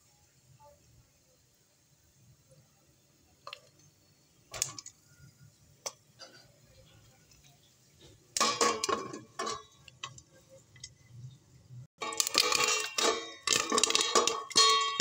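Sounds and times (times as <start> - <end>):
popcorn popping in covered pan: 3.4 - 6.5, 7.2 - 11.0, 12.0 - 15.0.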